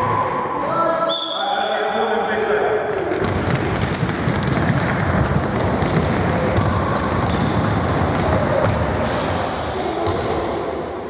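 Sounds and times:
children's footsteps in echoing hall: 0:02.9 - 0:11.0.

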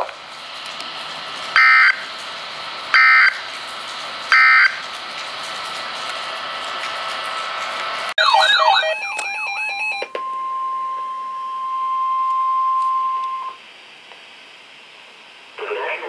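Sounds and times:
steady alarm tone: 0:01.6 - 0:02.0, 0:03.0 - 0:03.4, 0:04.3 - 0:04.8, 0:08.2 - 0:13.6
warbling electronic alert with beeps: 0:08.2 - 0:10.1
radio broadcast hiss: 0:15.5 - 0:16.0.

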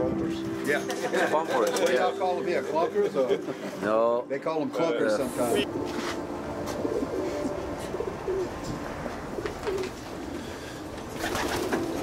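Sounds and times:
pigeons cooing: 0:06.6 - 0:12.0.

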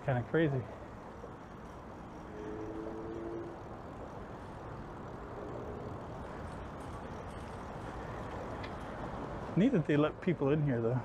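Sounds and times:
motor traffic rumble: 0:00.0 - 0:11.0.

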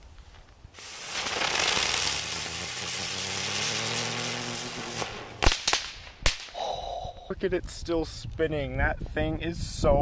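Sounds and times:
firework hissing and whirring: 0:00.7 - 0:06.7
sharp firework bangs: 0:00.8 - 0:06.6.

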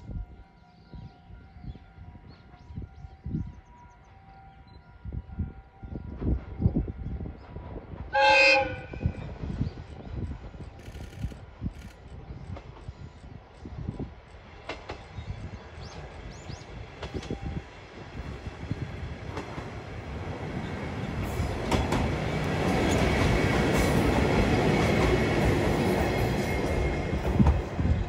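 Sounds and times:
diesel railcar engine: 0:06.1 - 0:28.0
train wheels on rails: 0:06.1 - 0:28.0.

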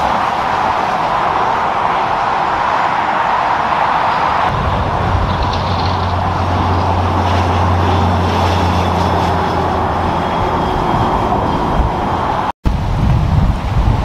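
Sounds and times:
passing cars: 0:00.0 - 0:12.5
truck diesel engine drone: 0:03.6 - 0:12.5.

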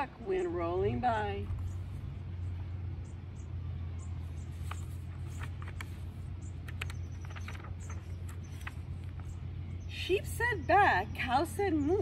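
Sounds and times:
low rumble: 0:01.4 - 0:09.8
book pages turning: 0:04.4 - 0:09.3.

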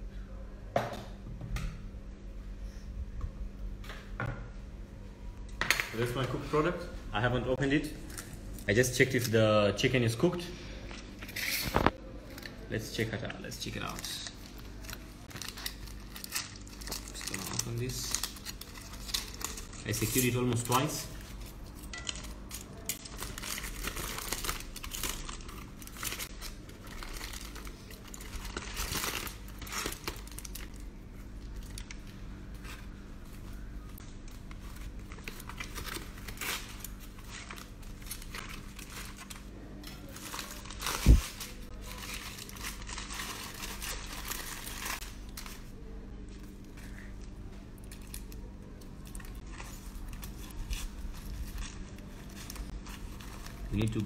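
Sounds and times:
aluminium foil crinkling and tearing: 0:10.7 - 0:54.0.

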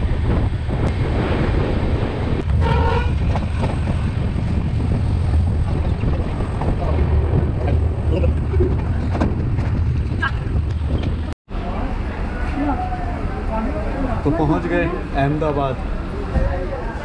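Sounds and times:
wind buffeting microphone: 0:00.0 - 0:11.4
train rumbling: 0:00.0 - 0:17.0
train horn blast: 0:02.6 - 0:03.2.

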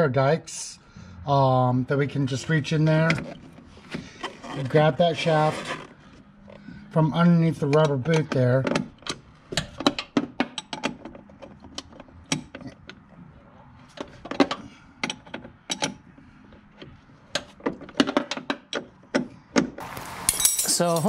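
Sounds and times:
metal wrench clicking: 0:20.3 - 0:21.0.

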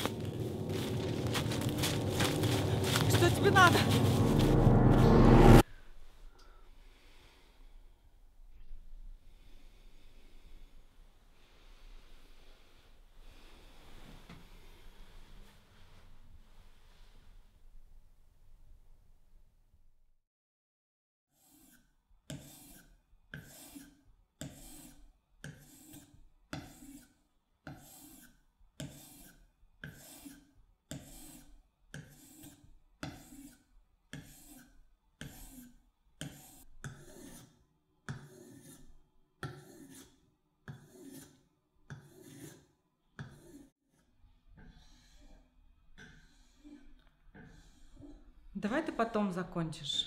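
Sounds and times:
knife blade scraping on sharpener: 0:21.4 - 0:43.7.

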